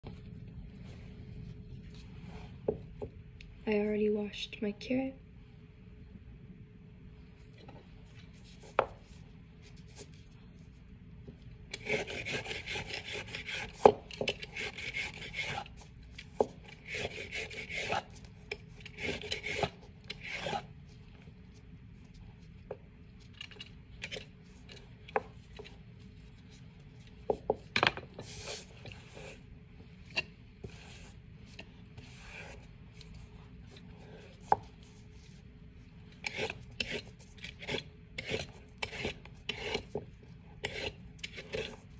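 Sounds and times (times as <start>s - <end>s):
peeler scraping a carrot: 11.7s - 15.8s, 16.7s - 20.7s, 36.2s - 40.0s, 40.6s - 41.9s.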